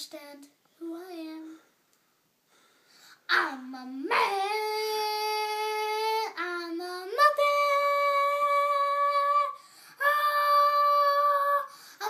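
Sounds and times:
boy singing unaccompanied: 0:03.3 - 0:12.0.

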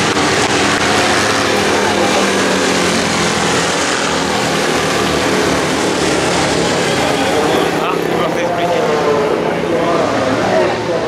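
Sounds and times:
racing car engines running hard: 0:00.0 - 0:11.0.

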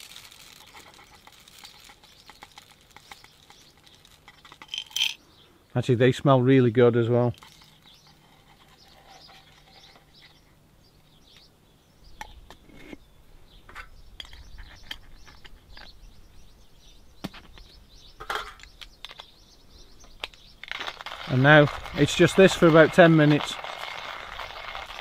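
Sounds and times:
birds chirping: 0:00.2 - 0:25.0
coffee grinder metal clinks: 0:00.3 - 0:05.2.

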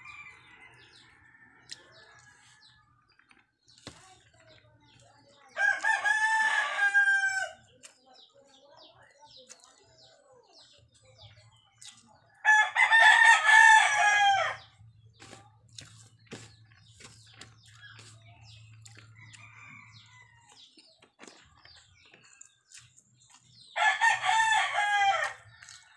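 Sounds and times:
rooster crowing: 0:12.5 - 0:14.6, 0:23.8 - 0:25.4.

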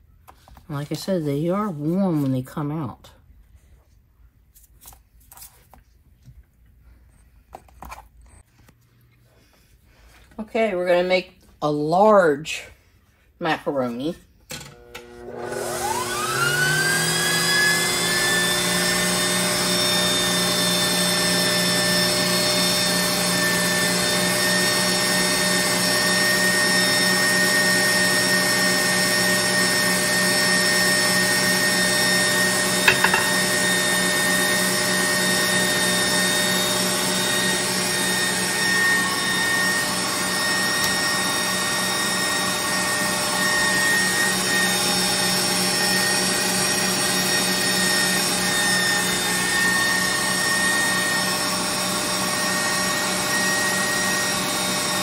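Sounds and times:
stand mixer motor whining: 0:14.7 - 0:55.0.

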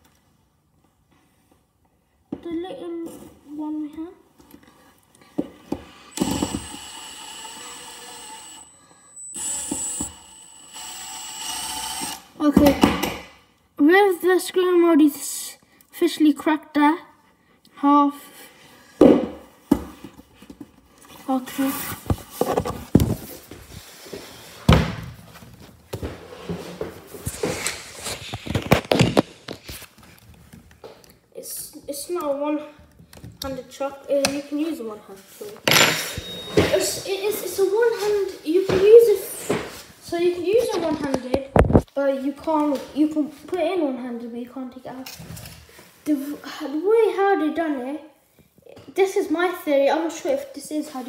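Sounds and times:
impact driver motor whine: 0:06.1 - 0:12.3
thumps and knocks of handling: 0:21.8 - 0:23.8.

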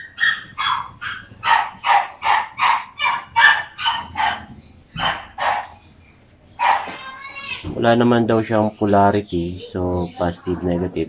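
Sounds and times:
dog yapping: 0:00.0 - 0:05.8, 0:06.6 - 0:07.6.

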